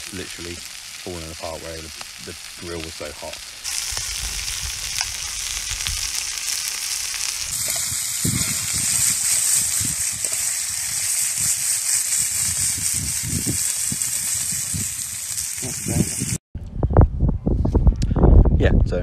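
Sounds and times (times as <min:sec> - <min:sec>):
burgers sizzling in a frying pan: 0:00.0 - 0:16.4
wind rumble on microphone: 0:03.8 - 0:06.4, 0:07.4 - 0:19.0.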